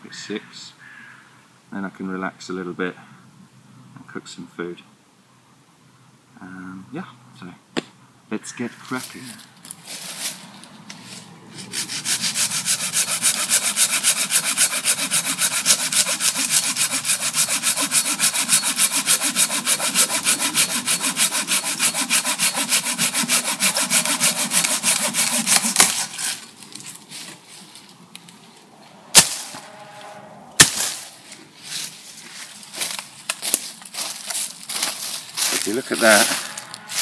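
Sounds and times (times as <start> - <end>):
hand saw cutting branch: 11.6 - 26.9, 29.2 - 29.8, 30.6 - 31.1, 34.7 - 37.0.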